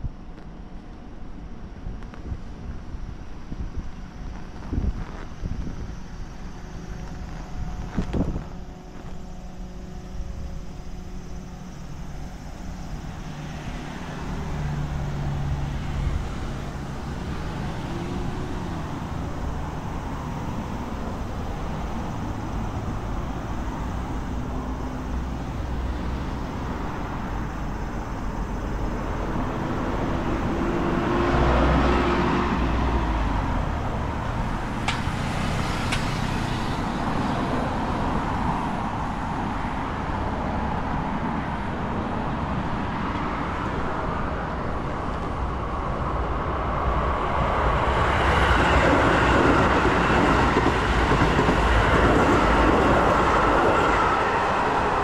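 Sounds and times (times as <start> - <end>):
traffic noise: 0.0 - 55.0.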